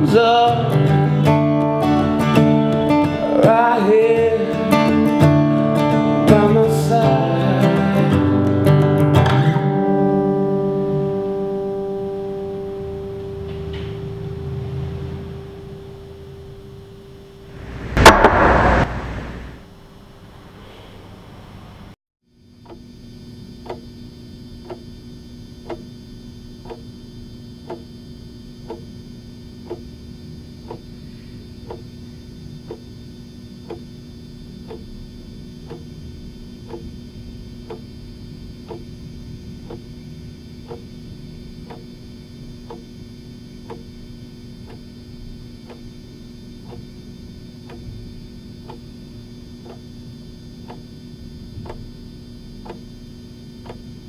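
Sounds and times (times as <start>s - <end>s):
constant low hum: 15.2s - 54.0s
steady ticking: 38.7s - 38.9s, 40.7s - 40.9s.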